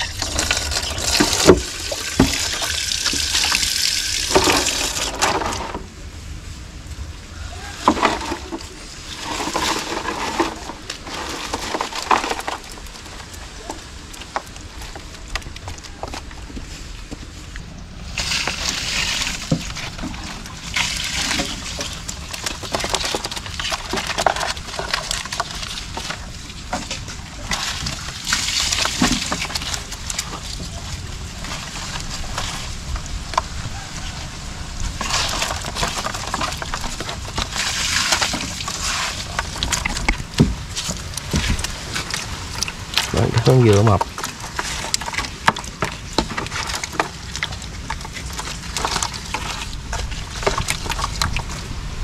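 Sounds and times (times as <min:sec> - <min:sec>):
water splashing and sloshing: 0:00.0 - 0:52.0.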